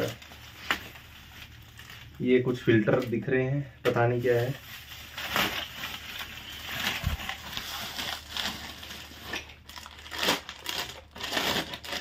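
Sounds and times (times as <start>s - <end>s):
plastic wrap crinkling: 0.0s - 12.0s.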